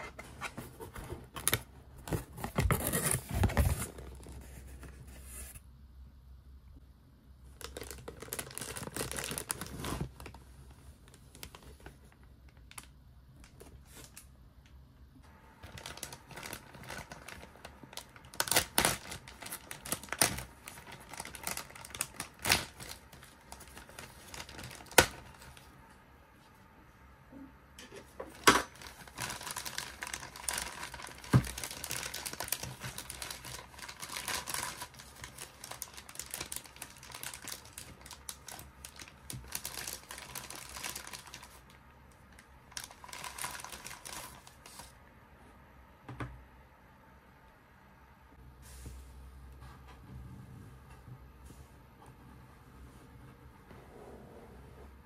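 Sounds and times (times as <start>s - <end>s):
plastic bag crinkling: 7.5s - 10.4s, 15.5s - 25.7s, 28.4s - 44.9s.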